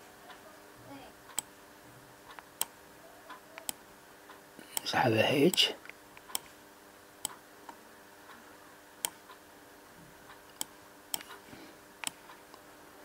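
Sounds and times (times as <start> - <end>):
faint steady hum: 0.0 - 13.0
computer mouse clicking: 10.5 - 11.4, 12.0 - 12.4.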